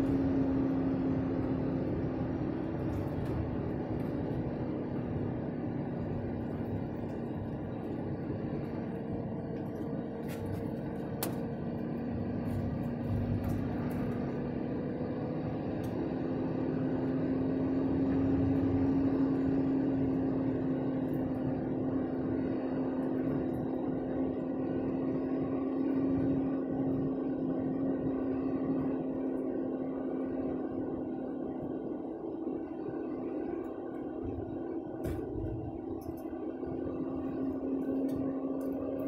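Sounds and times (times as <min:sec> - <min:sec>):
tyre and road rumble: 0:00.0 - 0:16.8
truck engine drone: 0:00.0 - 0:39.0.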